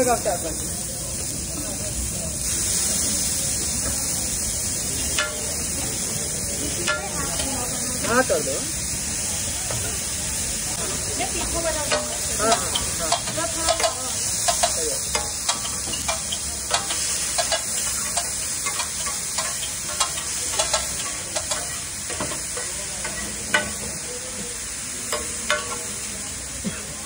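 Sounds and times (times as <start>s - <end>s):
onion and tomato sizzling in oil: 0.0s - 27.0s.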